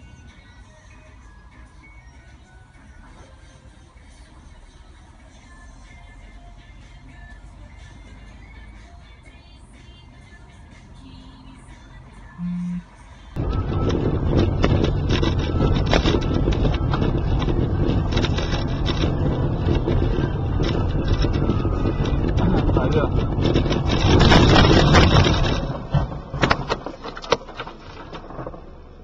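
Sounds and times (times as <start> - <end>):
car road and engine noise: 0.0 - 29.0.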